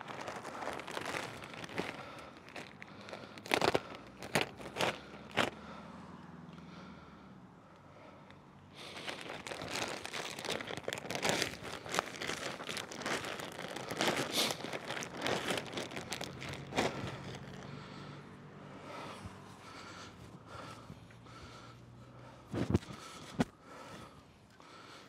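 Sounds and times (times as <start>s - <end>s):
crinkling and rustling: 0.0s - 5.6s, 8.8s - 17.9s, 22.5s - 23.6s.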